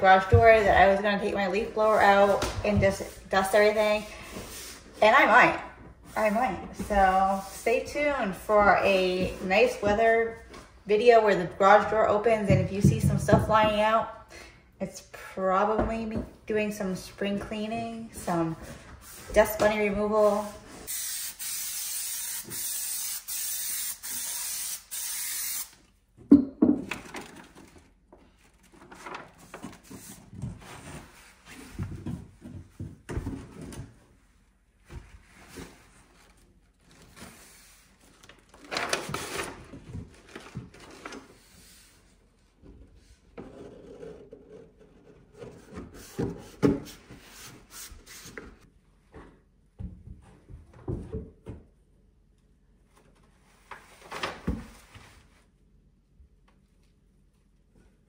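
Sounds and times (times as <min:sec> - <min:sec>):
knocks and thumps on wooden stairs: 0:12.5 - 0:14.0
aerosol spray can hissing: 0:20.9 - 0:25.8.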